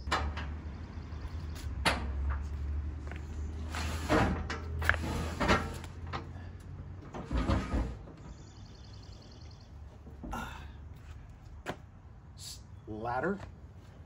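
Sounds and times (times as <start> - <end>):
metal ladder scraping and clanking: 3.6 - 6.4, 7.0 - 8.2.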